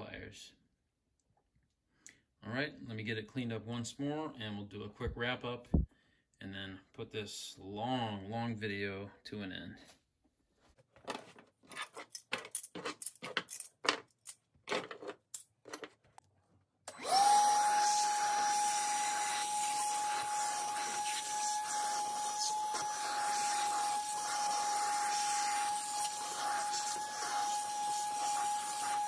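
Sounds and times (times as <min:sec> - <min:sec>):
shop vacuum whining: 0:16.9 - 0:29.0.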